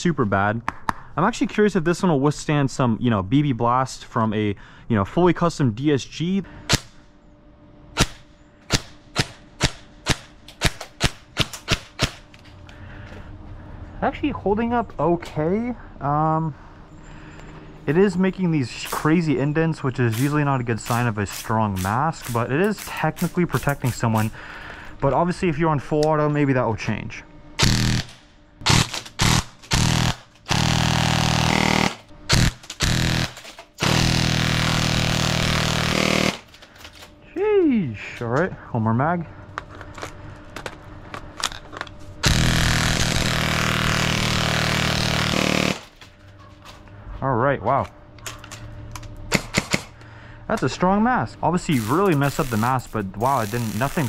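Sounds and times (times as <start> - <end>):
airsoft rifle shots: 8.0 - 12.2, 27.6 - 36.4, 49.3 - 49.9.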